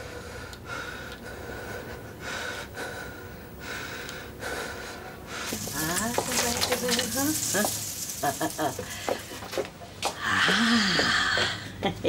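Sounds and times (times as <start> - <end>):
man breathing heavily: 0.0 - 5.7, 8.9 - 11.8.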